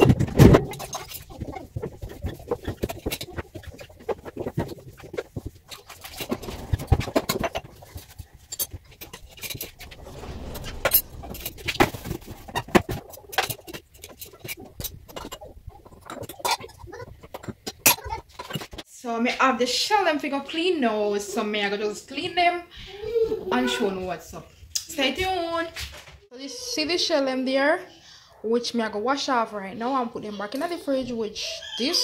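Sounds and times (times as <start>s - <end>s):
plastic scraping: 0.0s - 18.8s.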